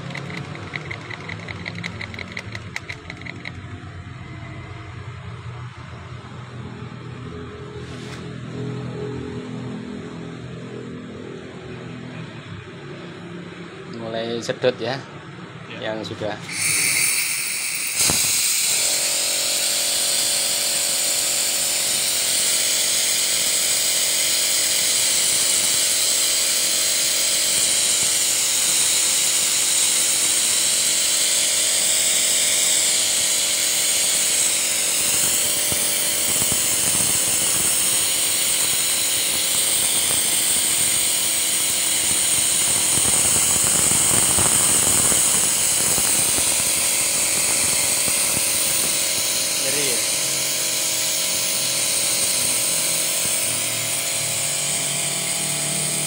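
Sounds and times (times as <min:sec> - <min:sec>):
machine hum: 0:00.0 - 0:13.9, 0:27.7 - 0:56.0
high hiss of fluid suction: 0:16.5 - 0:56.0.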